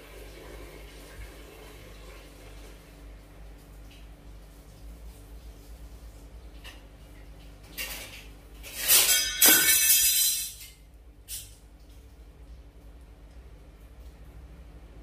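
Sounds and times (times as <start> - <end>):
low steady hum: 0.0 - 15.0
metal utensils clattering: 7.7 - 11.5.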